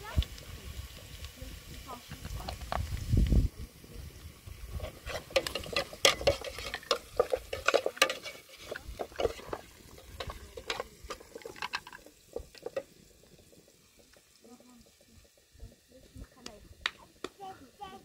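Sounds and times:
utensil scraping in cooking pot: 4.5s - 18.0s.

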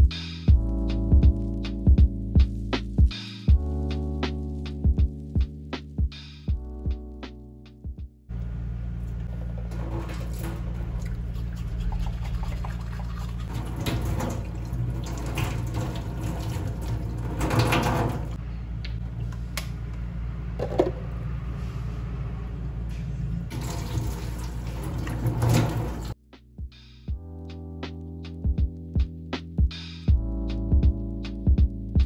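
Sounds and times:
tap running into metal sink: 9.7s - 11.2s, 13.5s - 18.4s, 23.5s - 26.1s.

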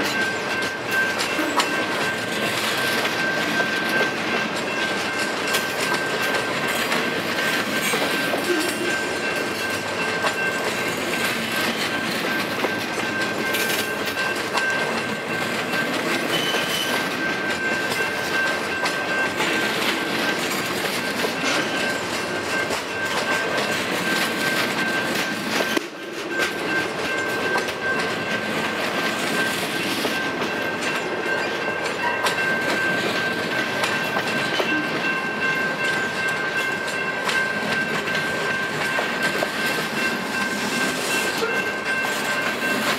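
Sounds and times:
train wheels clacking over joints: 0.0s - 42.9s
high-pitched ring: 15.7s - 19.4s.

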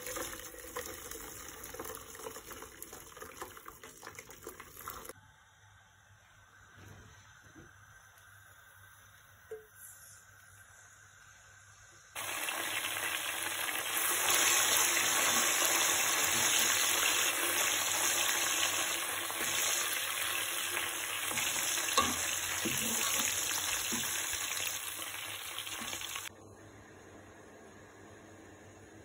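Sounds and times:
almonds sizzling in hot oil: 12.2s - 26.3s.

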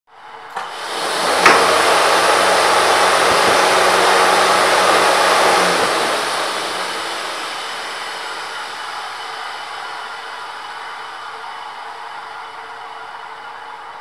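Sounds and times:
fan air rushing: 0.5s - 11.0s
low motor hum: 0.7s - 9.2s.

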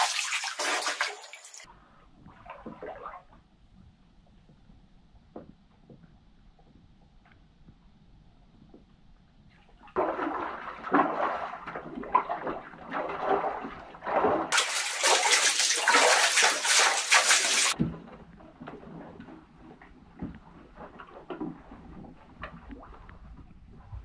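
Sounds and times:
water pouring: 0.0s - 1.7s, 9.8s - 17.8s
water splashing and sloshing: 0.0s - 3.9s, 8.6s - 24.0s.

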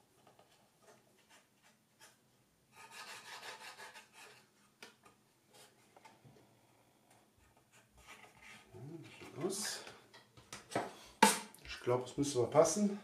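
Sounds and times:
wood scraping on wood: 7.4s - 10.0s.

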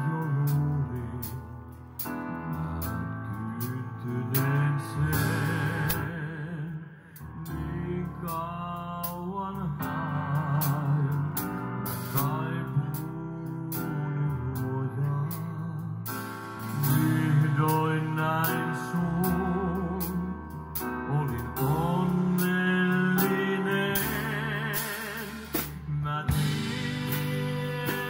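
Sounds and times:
man singing with vibrato: 0.0s - 1.5s, 2.7s - 28.0s
bass guitar: 0.0s - 28.0s
keyboard: 0.0s - 28.0s
drums with cymbal strikes: 2.0s - 2.2s, 4.4s - 6.2s, 10.6s - 12.5s, 16.1s - 21.0s, 21.6s - 28.0s
electric guitar: 16.1s - 28.0s.

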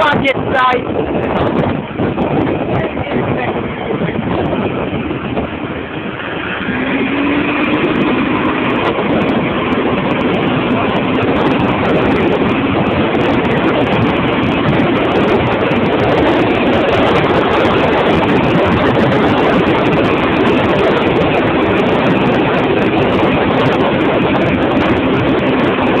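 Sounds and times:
engine and wind noise: 0.0s - 26.0s.

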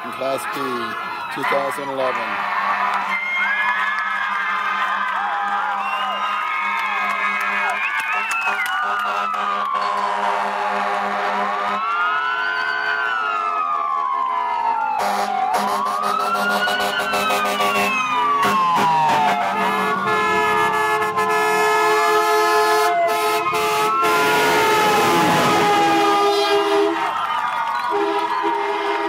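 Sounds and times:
fire truck sirens wailing: 0.0s - 29.0s
held horn tones: 15.0s - 27.0s.

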